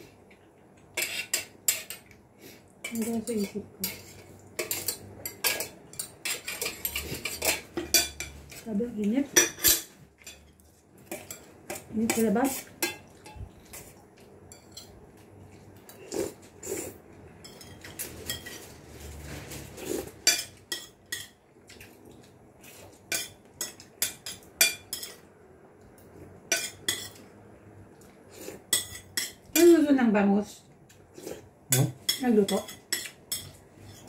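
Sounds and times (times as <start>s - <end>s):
cutlery clinking on plates: 2.9s - 8.4s, 20.2s - 21.4s, 26.5s - 27.2s, 31.7s - 34.0s.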